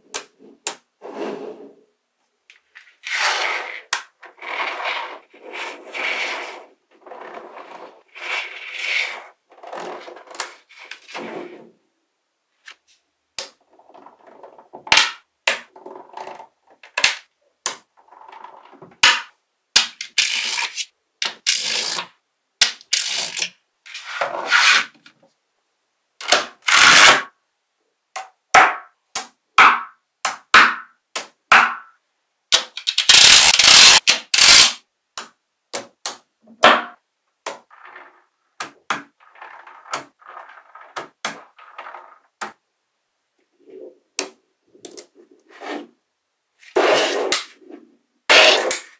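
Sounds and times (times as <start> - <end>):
magnetic balls rattling: 37.4 - 42.6.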